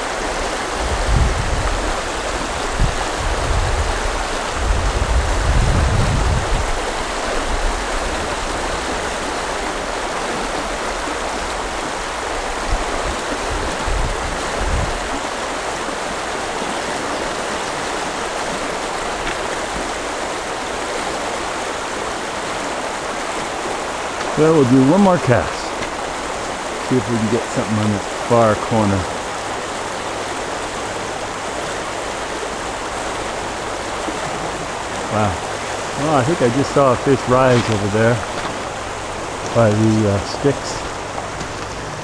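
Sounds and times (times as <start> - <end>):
river water rushing: 0.0 - 42.0
low rumbles: 23.1 - 42.0.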